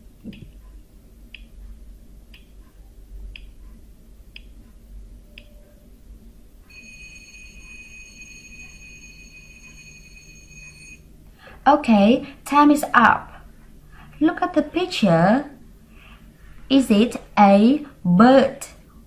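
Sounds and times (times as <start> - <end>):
clock ticking: 0.2 - 1.6, 2.3 - 2.6, 3.3 - 3.6, 4.3 - 5.6
alarm clock ringing: 6.7 - 11.0.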